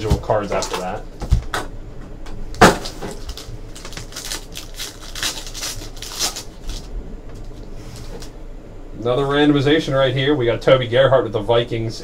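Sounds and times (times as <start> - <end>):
foil wrappers crinkling: 2.6 - 8.3.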